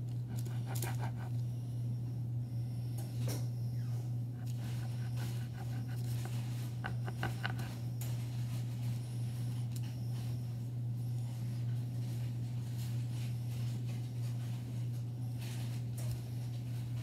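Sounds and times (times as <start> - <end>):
steady low hum: 0.0 - 17.0
knife scraping dough: 0.1 - 1.4, 4.4 - 7.9.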